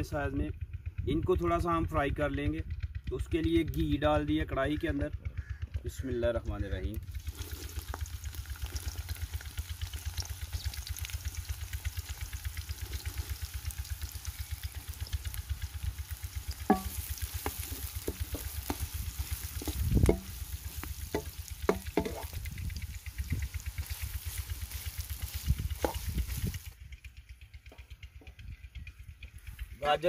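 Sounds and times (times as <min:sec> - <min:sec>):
low fast throbbing: 0:00.0 - 0:07.2, 0:07.9 - 0:30.0
carrots sizzling in hot fat: 0:07.0 - 0:26.8
wooden spatula scraping pan: 0:16.7 - 0:22.4, 0:25.8 - 0:26.1.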